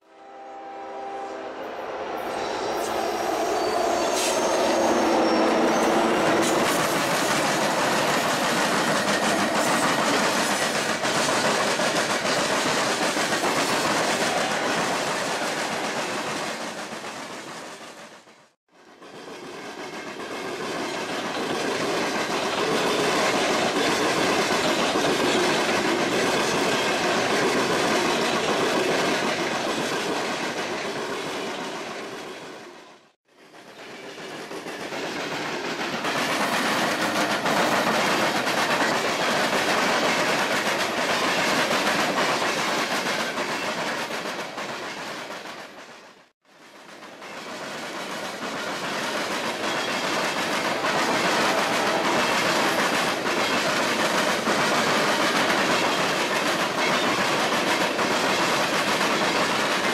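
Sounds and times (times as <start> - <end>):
freight train rolling past: 0.0 - 59.9
wheels clacking over rail joints: 4.1 - 18.1, 33.5 - 46.0, 46.7 - 59.9.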